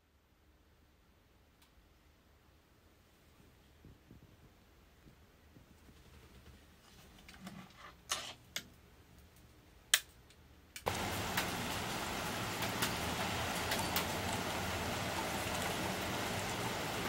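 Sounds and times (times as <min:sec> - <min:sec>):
rain falling: 0:10.8 - 0:17.0
water drips: 0:10.8 - 0:17.0.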